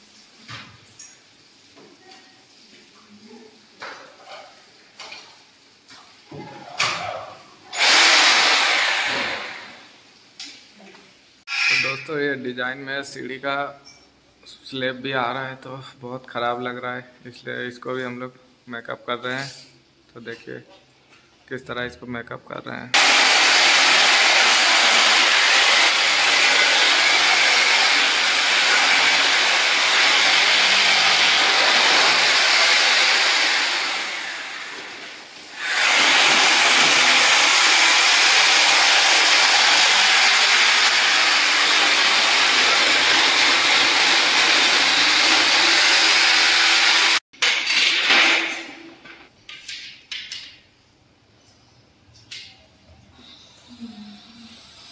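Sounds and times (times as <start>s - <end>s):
power tool running: 7.8s - 9.8s, 23.0s - 47.2s.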